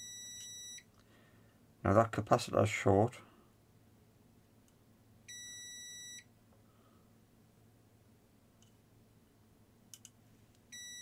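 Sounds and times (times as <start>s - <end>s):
multimeter high beep: 0.0s - 0.8s, 5.3s - 6.3s, 10.7s - 11.0s.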